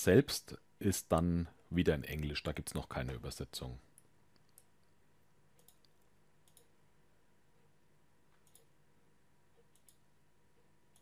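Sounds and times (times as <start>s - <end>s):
low steady hum: 0.0s - 11.0s
computer mouse clicks: 5.5s - 6.8s, 8.3s - 8.8s, 9.6s - 10.1s.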